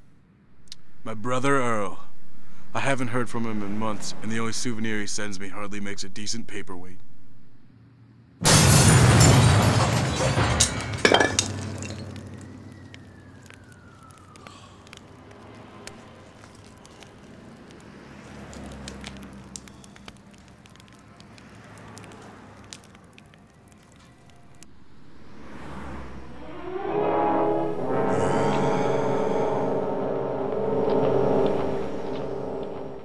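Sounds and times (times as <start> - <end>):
loud rumbling crash: 8.4 - 12.6, 24.4 - 33.0
sharp crack: 8.4 - 24.8
music: 26.4 - 33.0.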